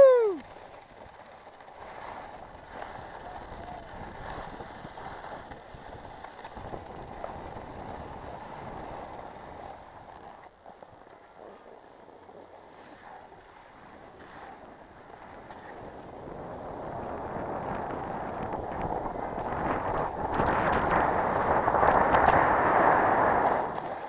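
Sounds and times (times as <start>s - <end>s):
person shouting: 0.0s - 0.4s
skis scraping over snow: 0.3s - 24.0s
wind on microphone: 2.3s - 10.3s, 13.8s - 24.0s.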